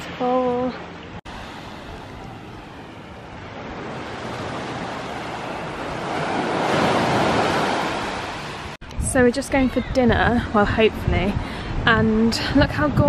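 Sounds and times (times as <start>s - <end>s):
small waves washing on sand: 1.3s - 8.8s.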